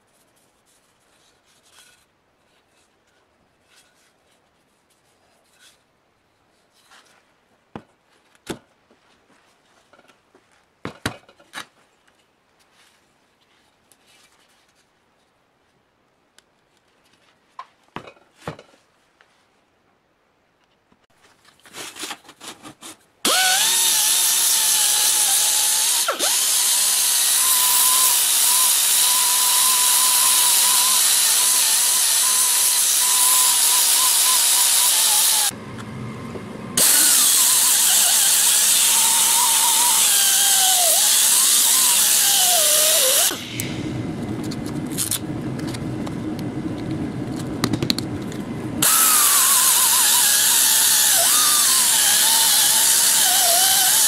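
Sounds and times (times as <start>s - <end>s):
air sander hissing and whining: 23.3s - 44.0s, 48.8s - 54.0s.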